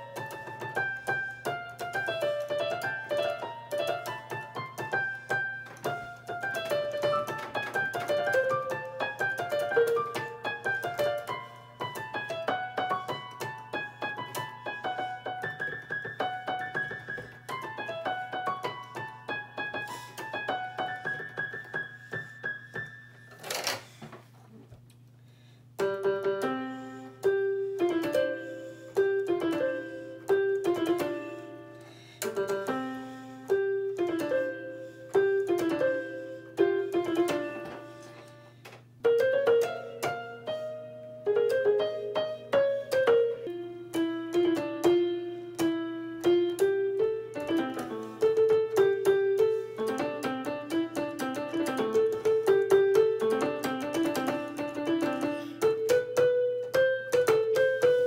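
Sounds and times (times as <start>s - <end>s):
electronic keyboard piano melody: 0.0s - 23.7s, 25.8s - 58.0s.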